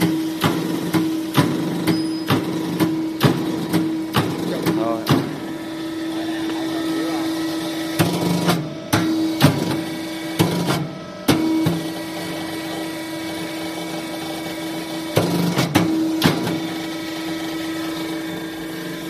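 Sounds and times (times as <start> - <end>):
sharp machine clacks: 0.0 - 5.5
machine motor humming: 0.0 - 19.0.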